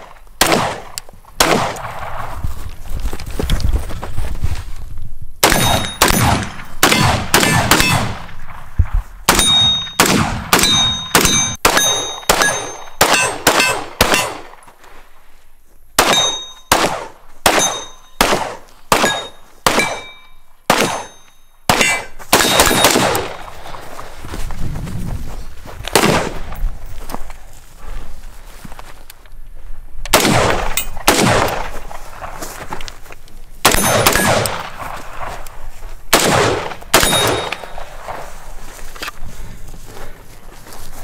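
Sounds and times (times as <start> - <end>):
gunshots: 0.0 - 2.3, 5.4 - 8.7, 9.3 - 14.6, 16.0 - 23.8, 25.9 - 26.6, 30.1 - 32.3, 33.6 - 35.4, 36.1 - 38.3
steel targets ringing: 5.5 - 6.3, 9.3 - 14.4, 16.0 - 16.8, 17.5 - 18.2, 19.0 - 23.1, 37.0 - 37.9.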